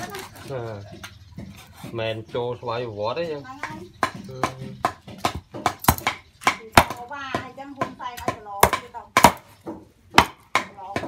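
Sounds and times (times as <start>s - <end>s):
cleaver chopping on wooden block: 3.6s - 11.0s.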